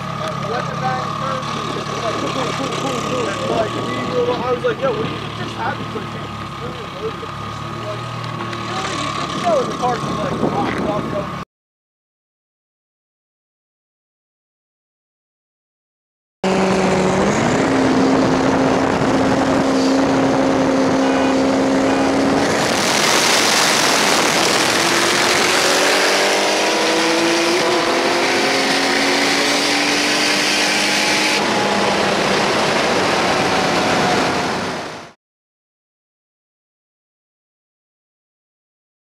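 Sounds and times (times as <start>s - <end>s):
car engine accelerating: 0.0s - 11.4s, 16.4s - 35.2s
rushing air: 22.1s - 28.3s.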